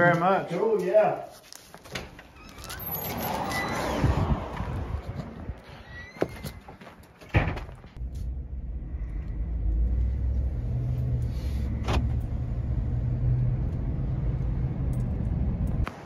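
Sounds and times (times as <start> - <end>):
engine and road rumble in cab: 8.0 - 16.0.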